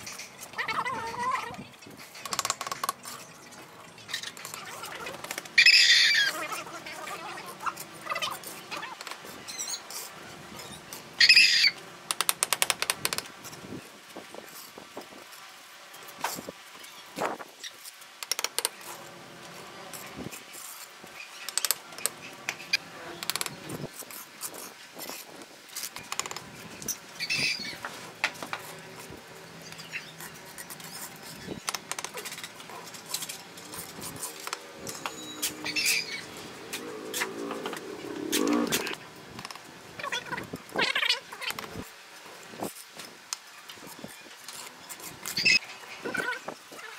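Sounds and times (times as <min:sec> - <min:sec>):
trowel scraping mortar: 0:29.8 - 0:37.8.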